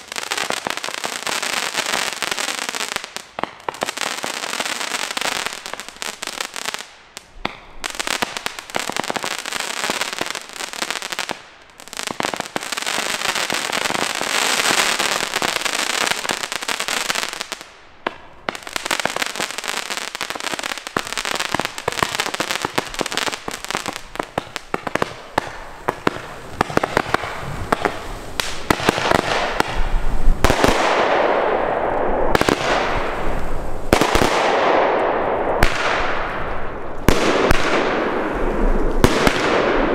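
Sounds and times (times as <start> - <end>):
firework bangs: 0.0 - 39.9
fireworks shots and crackles: 0.0 - 39.9.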